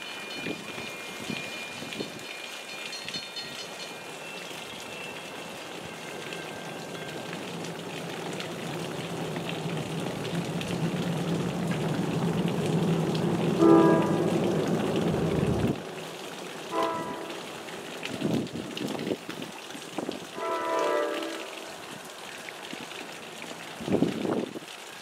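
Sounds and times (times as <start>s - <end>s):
train rumbling: 0.0s - 19.4s
rain falling: 0.0s - 25.0s
train horn: 13.5s - 15.6s, 16.7s - 17.8s, 20.3s - 22.1s.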